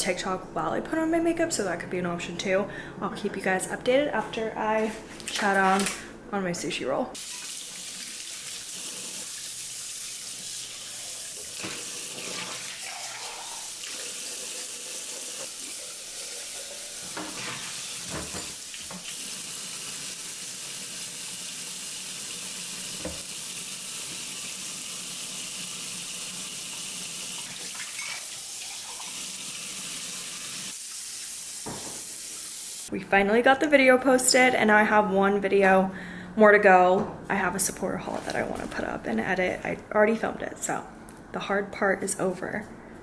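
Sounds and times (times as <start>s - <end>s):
tap running into steel sink: 23.0s - 23.3s, 31.6s - 32.0s.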